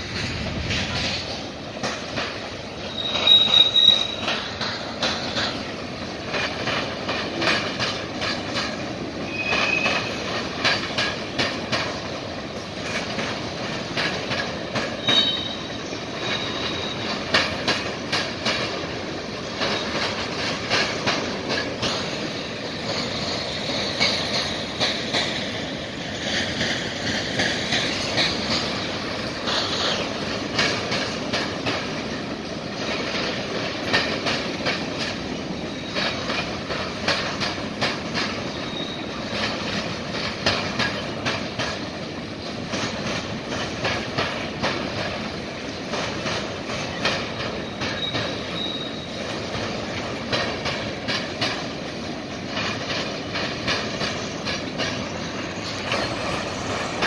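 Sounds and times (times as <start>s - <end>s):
train wheels clattering: 0.0s - 57.0s
wheel squeal: 2.8s - 4.5s, 9.3s - 10.2s, 15.0s - 17.2s, 38.5s - 39.2s, 47.6s - 49.2s.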